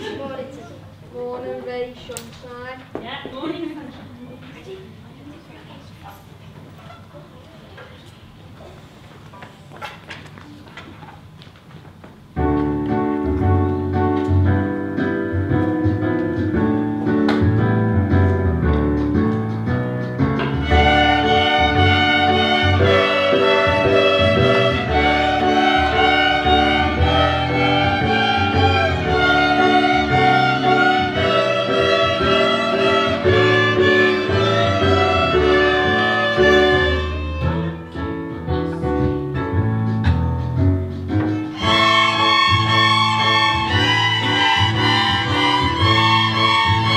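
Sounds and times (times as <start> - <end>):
string ensemble playing: 13.4 - 38.3, 41.3 - 46.9
violins playing: 20.6 - 37.9, 41.5 - 46.9.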